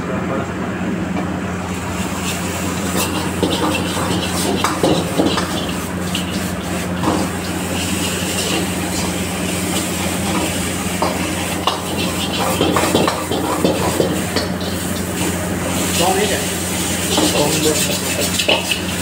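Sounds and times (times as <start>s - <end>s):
food sizzling: 1.6s - 19.0s
metal ladle scraping a wok: 2.0s - 15.2s, 17.0s - 19.0s.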